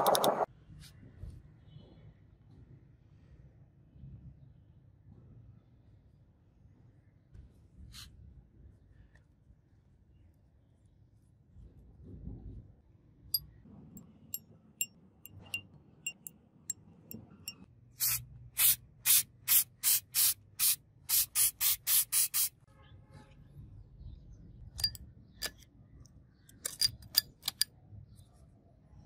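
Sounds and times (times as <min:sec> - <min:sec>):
aerosol spray bursts: 0:18.0 - 0:22.6
metal pieces clinking: 0:26.6 - 0:27.6.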